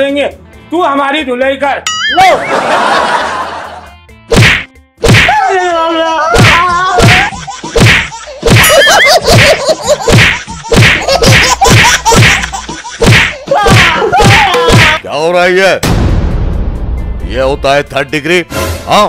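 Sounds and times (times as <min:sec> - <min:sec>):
bamboo stick whacks: 0:04.3 - 0:05.4, 0:06.4 - 0:08.7, 0:09.4 - 0:15.0
men crying out in pain: 0:05.3 - 0:07.4, 0:13.3 - 0:15.0.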